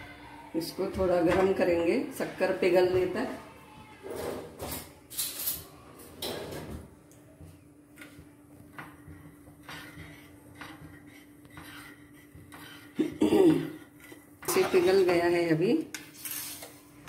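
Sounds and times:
spoon clinking and scraping pan: 9.6 - 15.2, 15.8 - 16.8.

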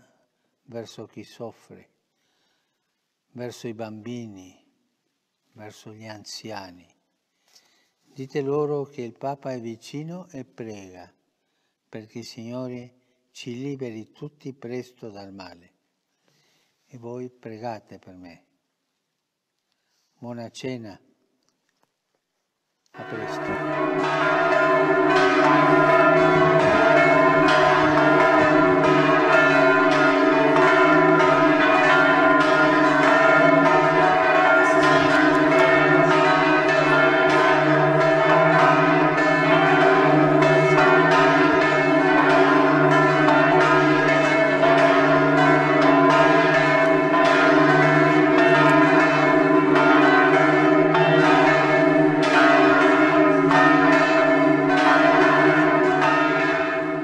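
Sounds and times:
church bells pealing: 23.0 - 57.0.

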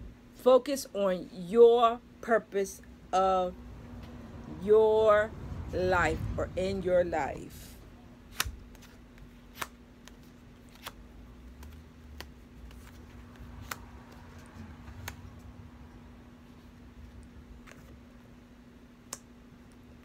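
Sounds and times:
faint steady hum: 0.0 - 20.0
cards clicking and snapping: 8.3 - 15.5.

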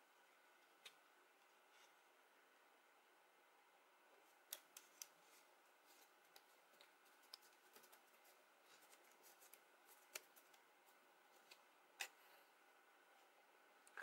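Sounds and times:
paper crackling as folded: 4.3 - 11.7.

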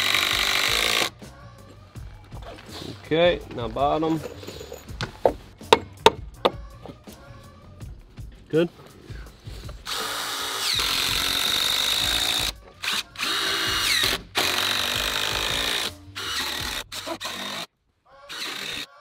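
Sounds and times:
drill driving screws into wood: 0.0 - 1.1, 9.8 - 17.7, 18.3 - 18.9.

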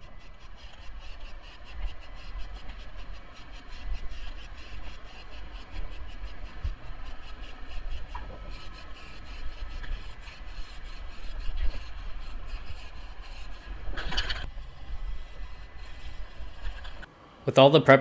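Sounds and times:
aerosol can spraying: 0.1 - 14.4.

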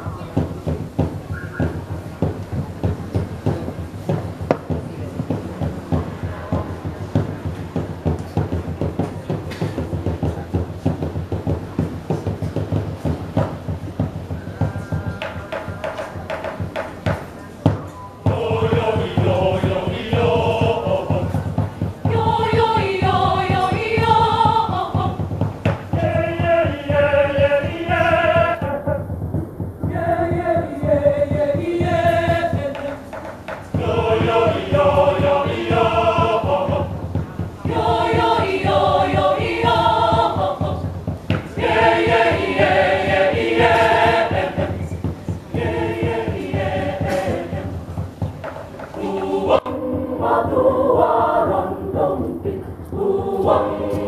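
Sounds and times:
church choir singing: 18.3 - 29.0, 29.8 - 32.9, 33.7 - 37.0, 37.6 - 47.8, 49.0 - 54.0.

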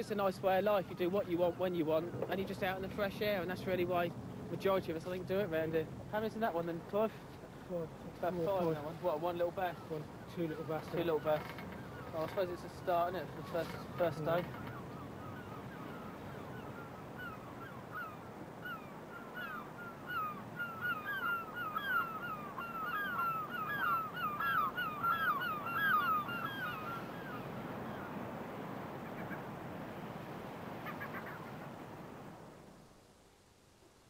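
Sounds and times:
background hiss: 0.0 - 34.0
gulls calling: 7.7 - 32.0.

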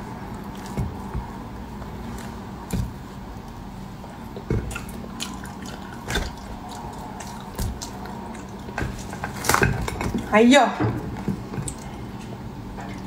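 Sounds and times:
fruit flesh squishing: 0.0 - 9.9.

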